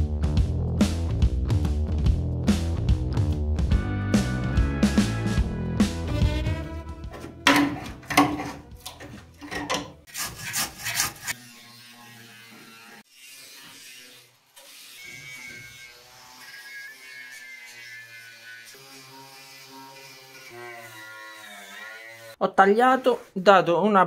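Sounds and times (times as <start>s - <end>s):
background music: 0.0s - 10.1s
angle grinder on sheet metal: 6.2s - 23.4s.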